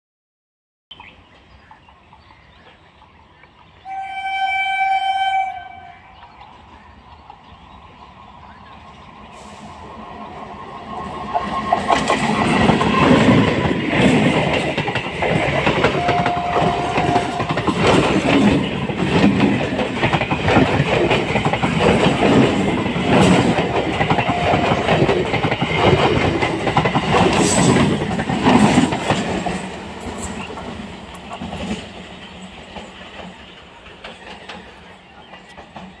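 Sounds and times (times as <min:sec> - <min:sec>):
electric train passing: 0:01.0 - 0:36.0
wheels clattering over rail joints: 0:11.4 - 0:32.0.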